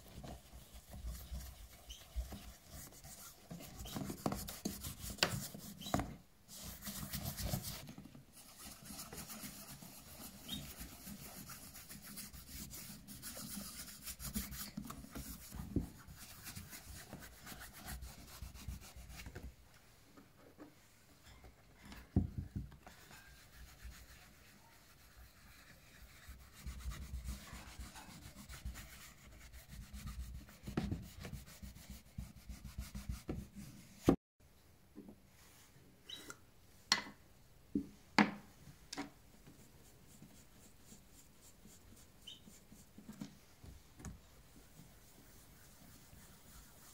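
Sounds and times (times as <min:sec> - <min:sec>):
cloth rubbing leather shoe: 0:00.1 - 0:19.3, 0:44.6 - 0:46.9.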